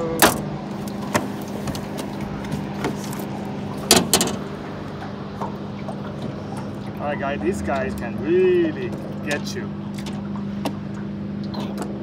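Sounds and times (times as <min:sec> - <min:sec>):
motor hum: 0:00.0 - 0:12.0
knocks in aluminum boat: 0:03.9 - 0:04.5.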